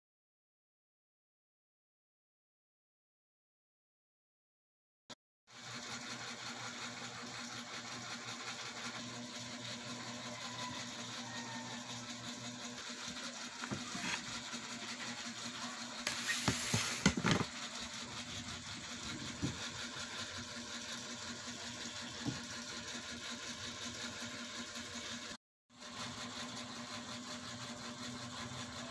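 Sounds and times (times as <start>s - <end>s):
small motor humming: 5.5s - 28.9s
knocks and handling noises: 13.6s - 14.3s, 16.1s - 17.5s.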